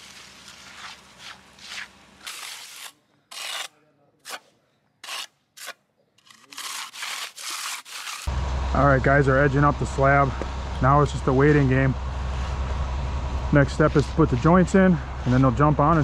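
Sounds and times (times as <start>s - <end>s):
tools scraping wet concrete: 0.0s - 8.3s.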